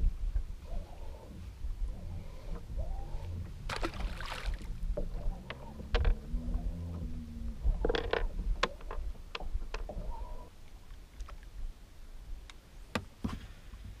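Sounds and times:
fishing tackle clicking and knocking: 0:07.8 - 0:09.9.

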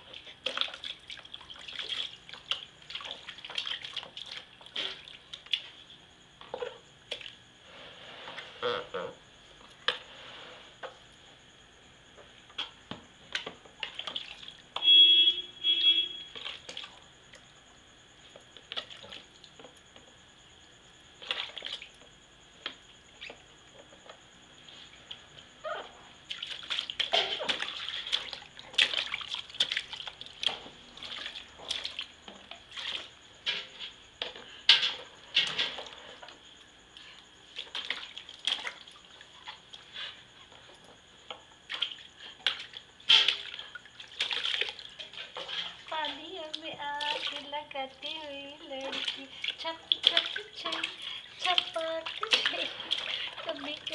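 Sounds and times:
water splashing in baby bathtub: 0:00.0 - 0:05.8, 0:13.7 - 0:14.8, 0:16.2 - 0:17.1, 0:18.6 - 0:19.7, 0:21.2 - 0:22.0, 0:26.3 - 0:33.7, 0:37.5 - 0:39.9, 0:41.6 - 0:53.9.

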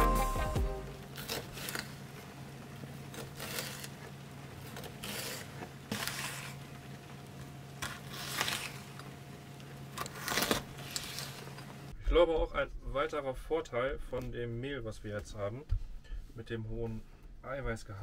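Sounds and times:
knife cutting on plastic board: 0:03.1 - 0:06.7, 0:07.8 - 0:09.0.

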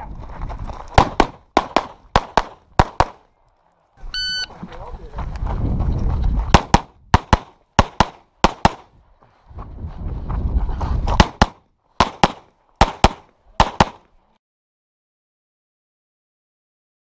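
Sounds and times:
pistol shots in pairs: 0:01.0 - 0:03.3, 0:06.5 - 0:08.9, 0:11.2 - 0:14.0.

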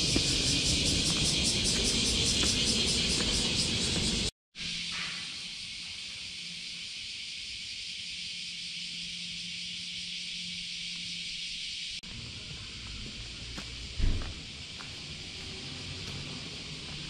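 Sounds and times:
wind rumble: 0:00.0 - 0:04.3
high-pitched hiss: 0:00.0 - 0:17.0.

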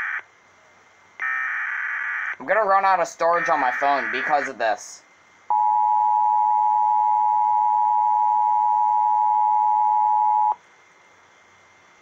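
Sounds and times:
faint hiss: 0:10.6 - 0:12.0.

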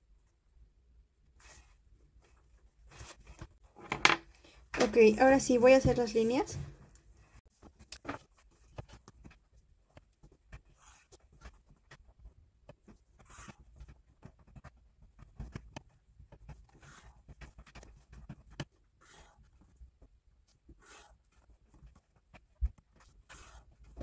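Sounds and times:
pen scratching on paper: 0:01.4 - 0:01.8, 0:08.4 - 0:24.0.

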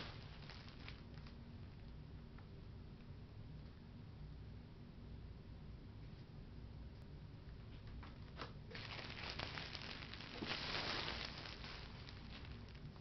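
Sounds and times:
plastic bag rustling: 0:00.0 - 0:01.3, 0:08.7 - 0:13.0.

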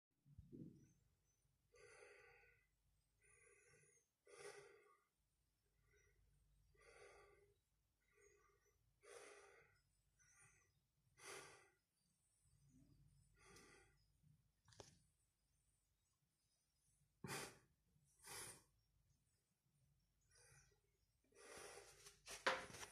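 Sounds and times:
man breathing close to microphone: 0:01.7 - 0:05.1, 0:05.8 - 0:12.6, 0:18.2 - 0:18.8, 0:20.2 - 0:22.2.

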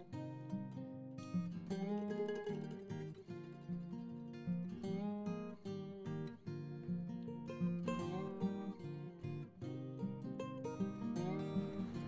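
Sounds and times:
acoustic guitar music: 0:00.0 - 0:12.0.

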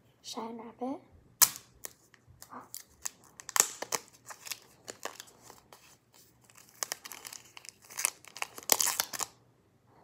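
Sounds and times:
plastic wrapping crinkling: 0:01.4 - 0:09.4.

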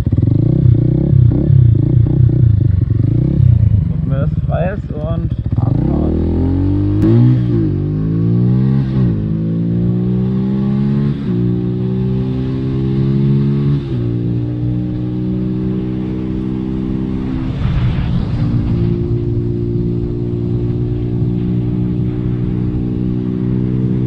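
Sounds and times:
motorcycle engine accelerating: 0:00.0 - 0:24.0.

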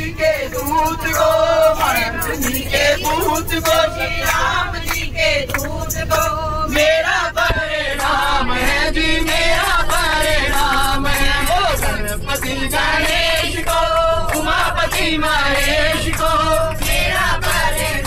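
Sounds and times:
man singing through speakers: 0:00.0 - 0:05.2, 0:05.9 - 0:13.0
bus rumbling: 0:00.0 - 0:18.0
group singing along: 0:00.0 - 0:18.0.

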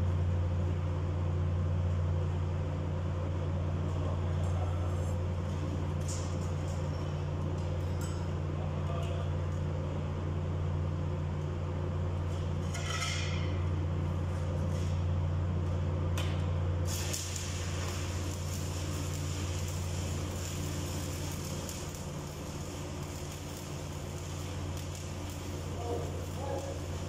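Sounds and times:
low electrical hum: 0:00.0 - 0:27.0
welding arc hissing and crackling: 0:03.8 - 0:09.7, 0:12.1 - 0:27.0.

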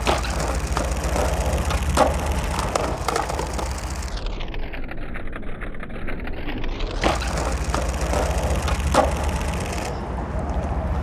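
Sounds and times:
sharp skateboard knocks: 0:00.0 - 0:04.2, 0:06.9 - 0:10.0
skateboard wheels rolling on concrete: 0:00.0 - 0:11.0.

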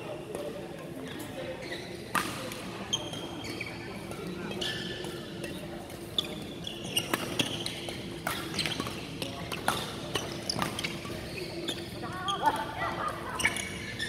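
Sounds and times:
shoes squeaking on court: 0:00.4 - 0:02.2, 0:02.8 - 0:14.0
rackets hitting shuttlecock: 0:07.0 - 0:11.3.

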